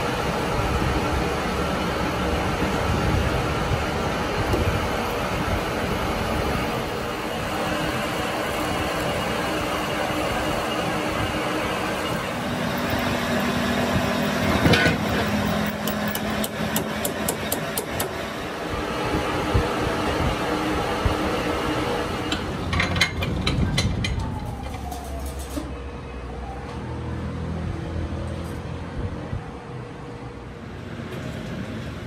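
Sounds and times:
machine running: 0.0 - 22.8.

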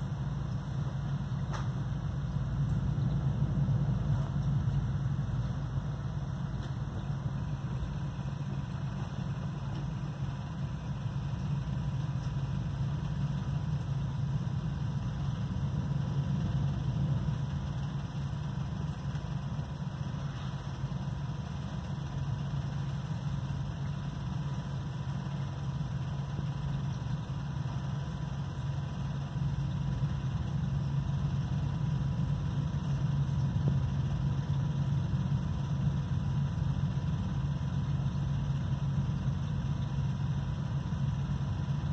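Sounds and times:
aquarium equipment hum: 0.0 - 41.9.

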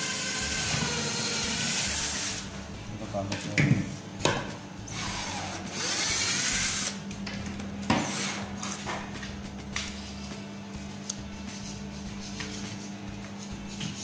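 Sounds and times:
circular saw motor humming: 0.0 - 2.8, 4.8 - 7.2.

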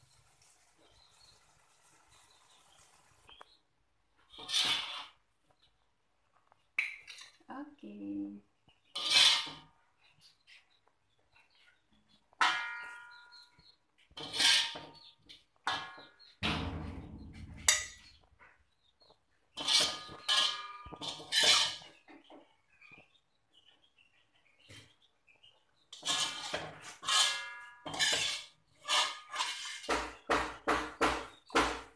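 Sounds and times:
spatula scraping metal wok: 4.3 - 5.2, 8.9 - 9.7, 14.2 - 15.0, 19.6 - 21.9, 25.9 - 30.0.

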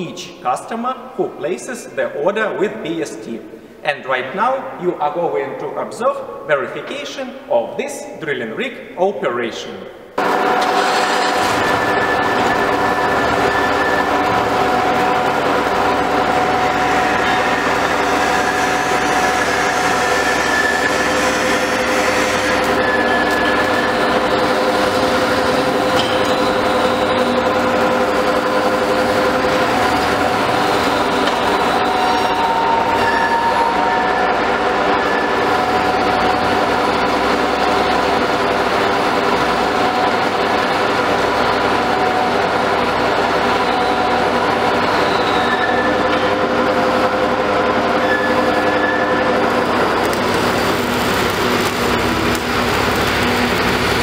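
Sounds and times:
engine droning under load: 10.1 - 54.0
high whining tones: 10.5 - 38.2.

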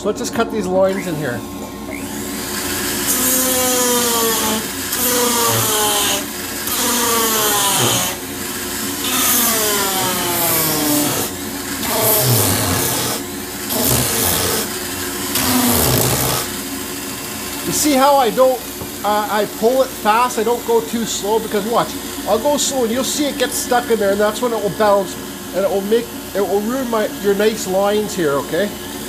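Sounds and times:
rotary carver motor whine: 0.8 - 29.0
rasping hiss of burr cutting wood: 1.0 - 29.0.

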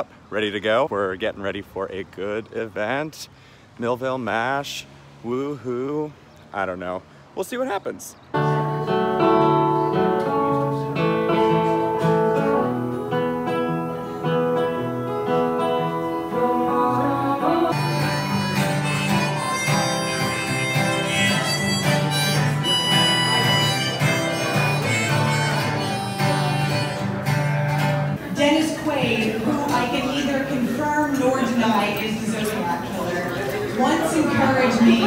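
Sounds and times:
sustained melody notes: 8.3 - 32.0
acoustic guitar music: 8.3 - 35.0.

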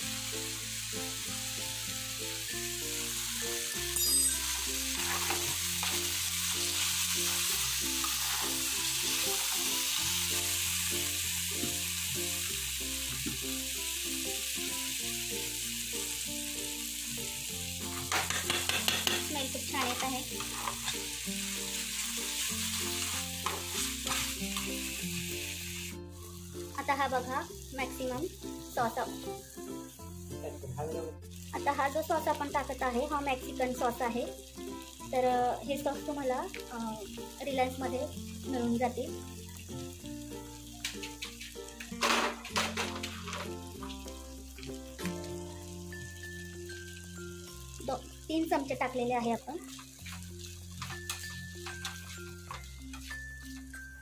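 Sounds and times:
vegetables sizzling in oil: 0.0 - 54.0
steel spatula scraping pan: 4.4 - 6.0, 8.0 - 8.6, 22.7 - 24.7.

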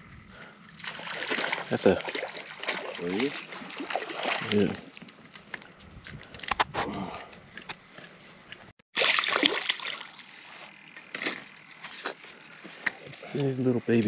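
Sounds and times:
fish splashing at water surface: 0.7 - 5.0, 9.0 - 10.4.

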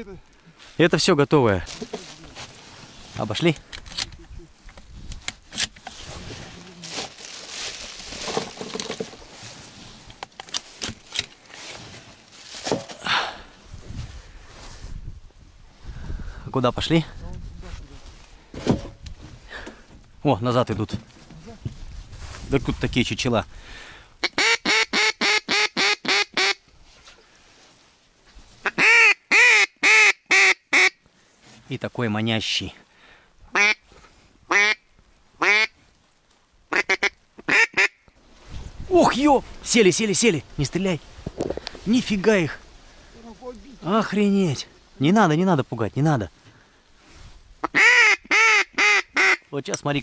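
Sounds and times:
dry reeds rustling and crackling: 0.0 - 16.0, 16.6 - 23.3, 26.4 - 29.1, 33.5 - 50.0
duck call quacks: 24.2 - 26.6, 28.6 - 31.0, 33.5 - 33.8, 34.5 - 34.8, 35.4 - 35.7, 36.7 - 38.0, 47.6 - 49.4.

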